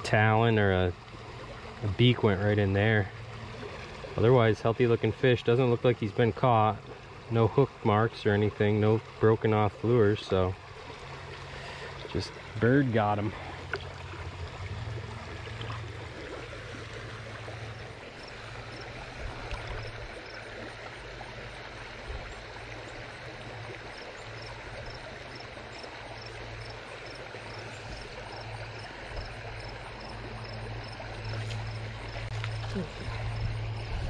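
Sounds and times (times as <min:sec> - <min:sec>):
stream running over gravel: 0:00.0 - 0:34.0.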